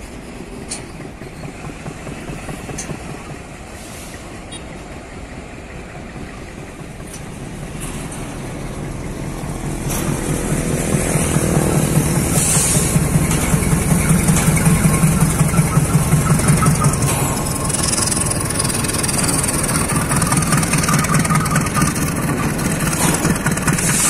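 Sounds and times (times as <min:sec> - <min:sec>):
diesel locomotive engine passing: 0:00.0 - 0:24.0.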